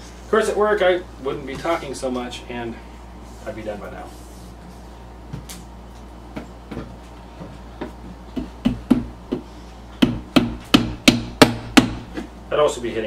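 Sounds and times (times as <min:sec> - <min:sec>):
hammer tapping nails: 0:10.0 - 0:12.0.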